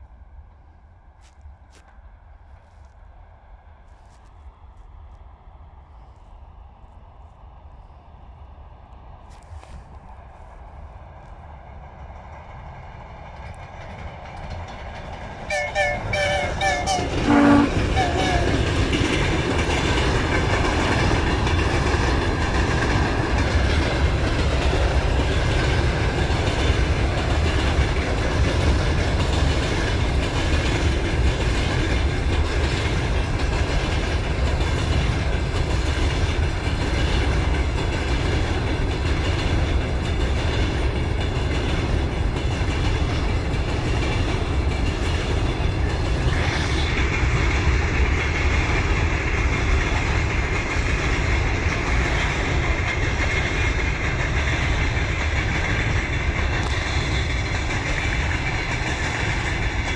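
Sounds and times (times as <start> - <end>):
freight train rumbling: 0.0 - 59.9
wheels clattering over rail joints: 12.2 - 59.9
train horn: 15.5 - 18.7.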